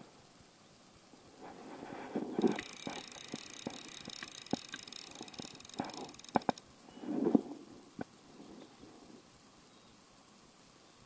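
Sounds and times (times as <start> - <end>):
fishing rod clicks: 2.4 - 6.6.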